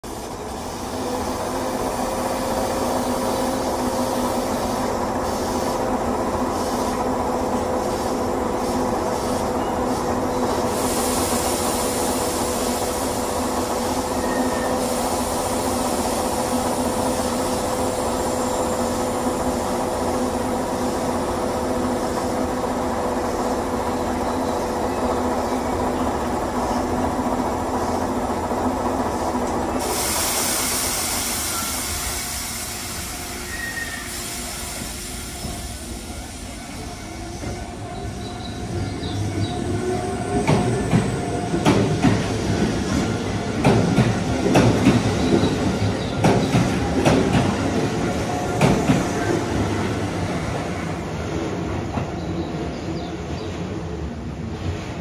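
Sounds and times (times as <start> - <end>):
air hissing: 0.6 - 21.2, 29.2 - 37.5.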